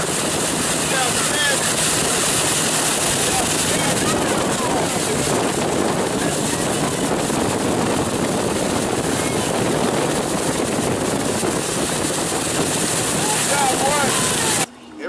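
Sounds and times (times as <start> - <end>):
rushing water and spray: 0.0 - 14.7
boat engine drone: 0.0 - 15.0.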